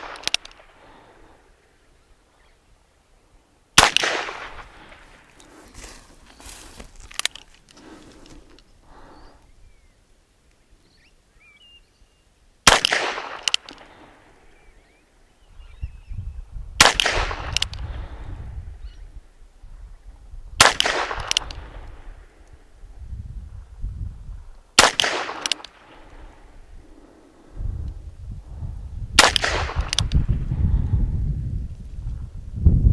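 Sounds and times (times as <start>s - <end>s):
faint bird chirps: 1.8s - 2.7s, 8.7s - 10.1s, 10.7s - 12.4s, 14.4s - 16.6s.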